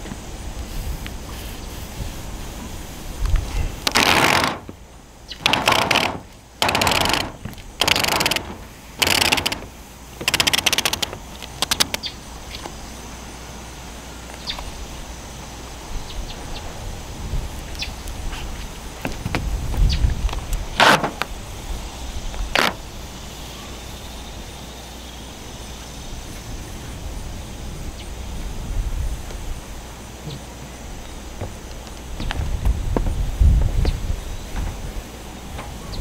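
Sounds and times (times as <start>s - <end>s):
tape ripping off a roll: 3.4s - 4.8s, 5.4s - 12.0s, 20.4s - 21.4s, 22.4s - 22.8s.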